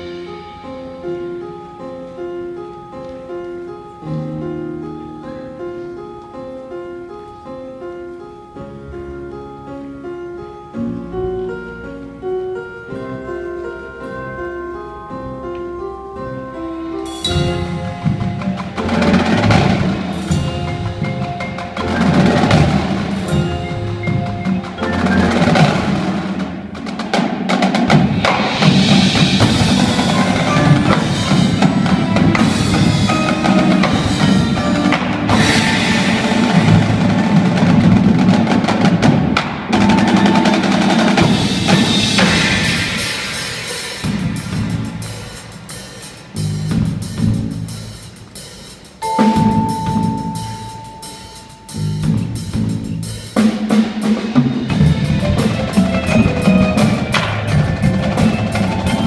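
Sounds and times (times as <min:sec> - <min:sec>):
marimbas and mallet percussion: 0:12.6 - 0:39.0, 0:39.7 - 0:59.0
drumline playing: 0:17.0 - 0:59.0.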